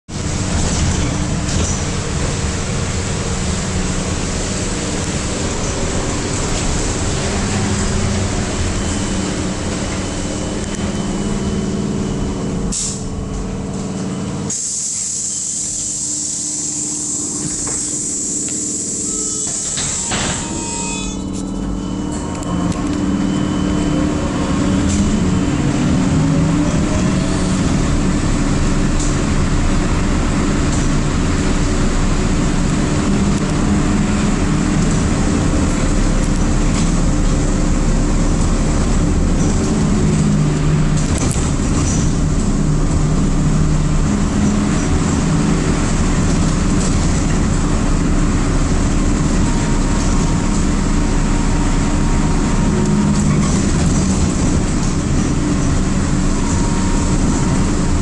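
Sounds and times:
loud high hiss: 14.5s - 20.5s
tyre noise on wet road: 22.9s - 58.0s.

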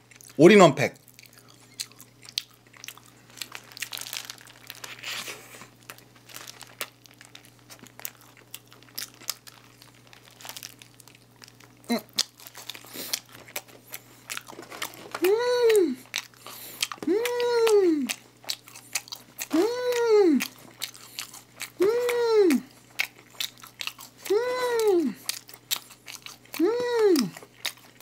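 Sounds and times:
biting and chewing: 1.0s - 28.0s
paper wrapper crinkling: 1.1s - 17.1s.

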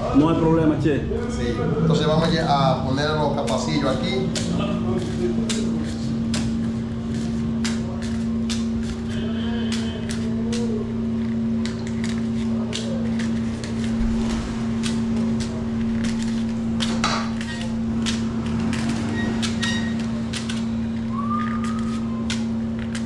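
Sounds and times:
low machine hum: 0.0s - 23.0s
paper liners clicking and rustling: 4.9s - 23.0s.

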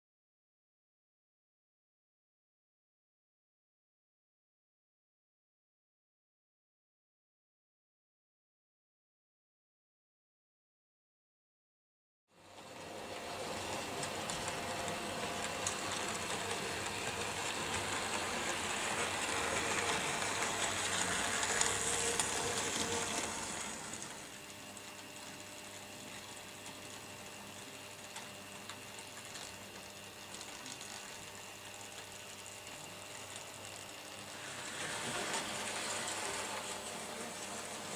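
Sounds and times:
model train motor whirring: 12.6s - 37.9s.

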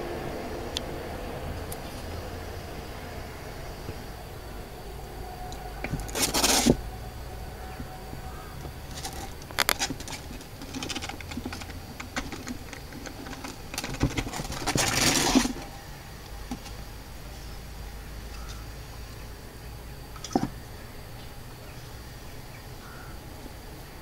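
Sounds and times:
claws scratching on plastic: 5.8s - 6.9s, 7.8s - 15.8s.

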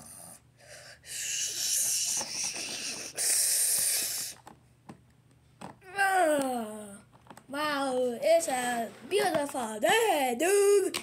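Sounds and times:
person hissing: 0.0s - 4.4s.

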